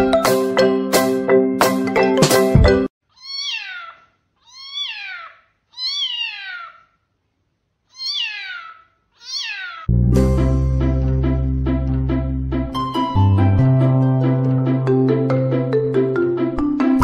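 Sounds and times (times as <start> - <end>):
background music: 0.0 - 2.9, 9.9 - 17.0
kitten meowing: 3.1 - 6.9, 7.9 - 9.9.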